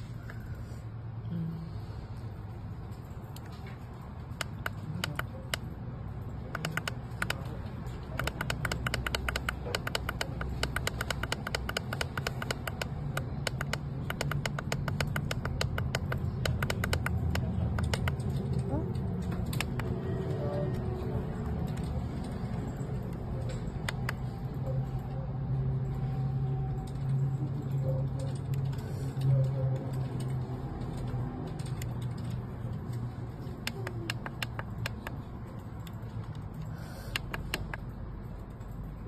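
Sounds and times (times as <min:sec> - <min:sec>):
steady low hum: 0:00.0 - 0:39.0
button clicks: 0:06.5 - 0:07.4, 0:08.1 - 0:18.2.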